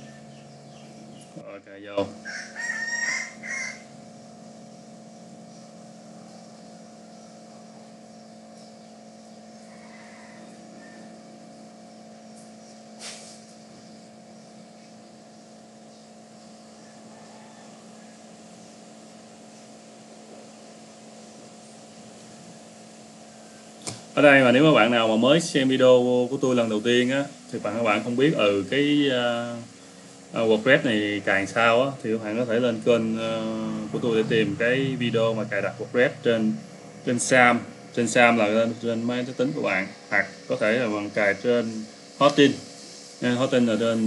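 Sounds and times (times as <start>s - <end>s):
held low tones: 0.0s - 2.4s, 3.2s - 9.8s, 22.0s - 44.0s
steady background hum: 0.0s - 44.0s
rooster crowing: 2.2s - 4.0s, 9.6s - 11.4s, 16.8s - 18.5s.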